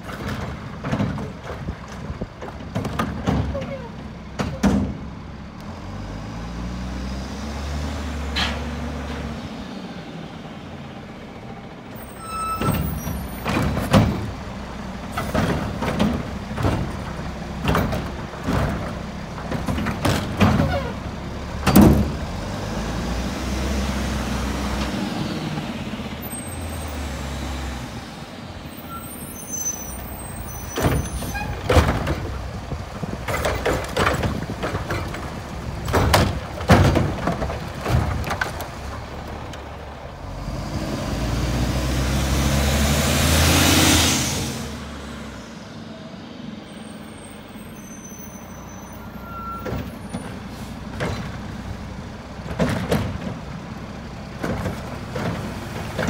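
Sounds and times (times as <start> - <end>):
garbage carts knocking and clattering: 0.0 - 5.1, 12.6 - 14.5, 15.1 - 22.4, 30.8 - 39.3, 49.6 - 51.6, 52.3 - 56.0.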